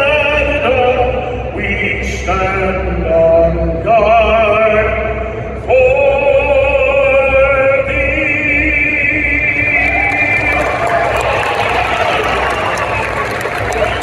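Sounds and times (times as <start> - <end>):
operatic man singing anthem: 0.0 - 10.9.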